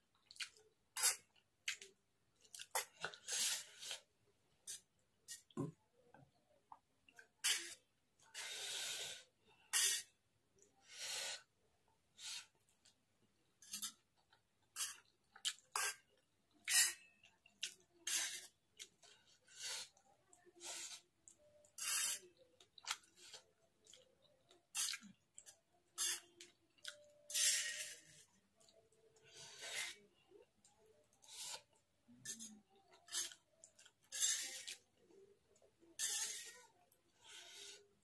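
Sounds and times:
wet chewing and slurping: 0.2 - 4.0.

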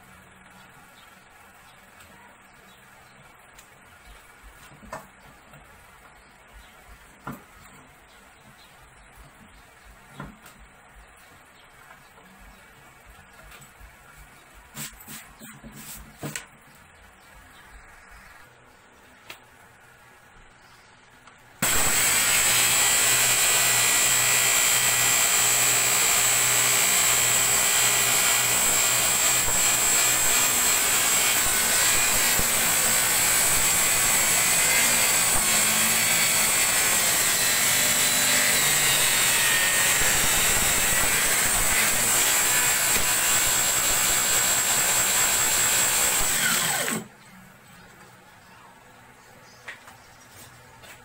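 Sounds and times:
circular saw whining: 21.6 - 47.1.

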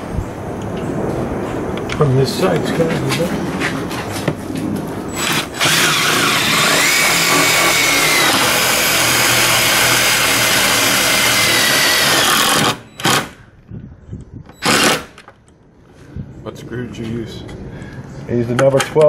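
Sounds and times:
drill driving screw into metal: 5.2 - 13.4, 14.6 - 15.2.

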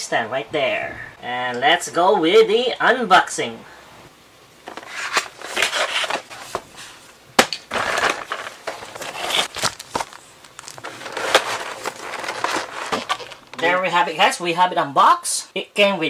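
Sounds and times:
plastic and cardboard crinkling: 4.6 - 13.8.

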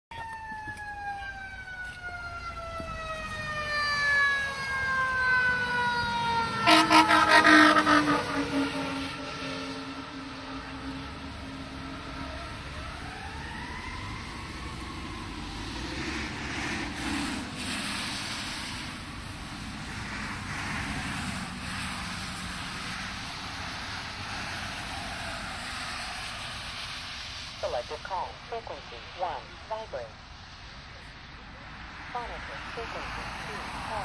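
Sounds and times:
fire truck siren: 0.1 - 30.1, 32.1 - 34.0
rapid pulsing horn blasts: 6.5 - 10.2.

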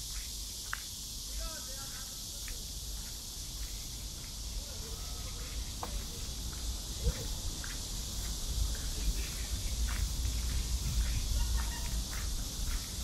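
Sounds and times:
insects droning: 0.0 - 13.0
faint distant voices: 4.4 - 12.9.

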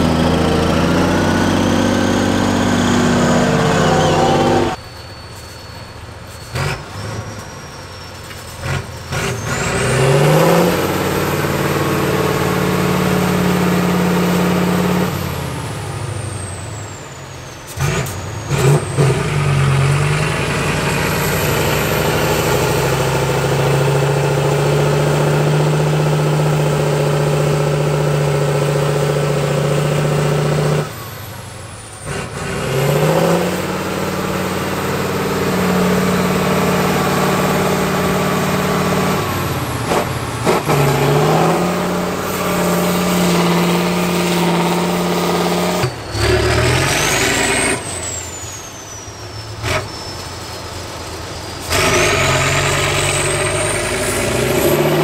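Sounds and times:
truck diesel engine revving: 0.0 - 4.8, 6.4 - 55.0
high turbo whistle: 0.0 - 55.0.

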